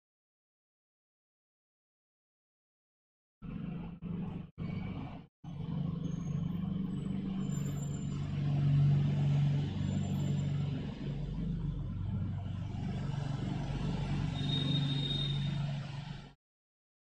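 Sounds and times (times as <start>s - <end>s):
low engine-like rumble: 3.4s - 14.3s.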